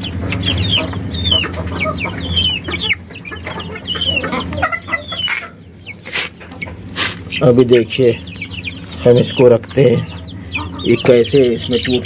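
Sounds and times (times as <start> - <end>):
chickens peeping and clucking: 0.0 - 12.0.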